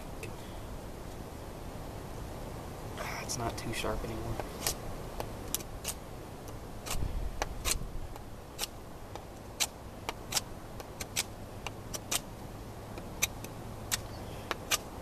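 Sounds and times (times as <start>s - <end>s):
knife scraping wood: 4.4s - 4.8s, 5.5s - 6.0s, 6.8s - 8.8s, 9.6s - 12.3s, 13.0s - 14.9s.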